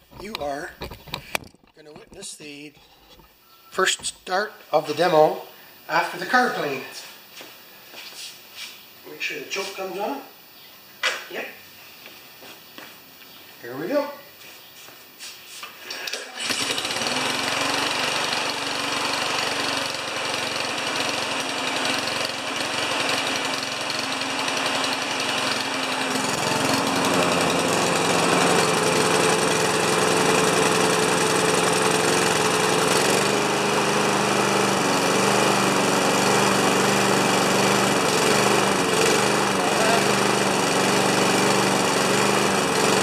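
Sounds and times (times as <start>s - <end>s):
lawn mower engine running: 15.8s - 43.0s.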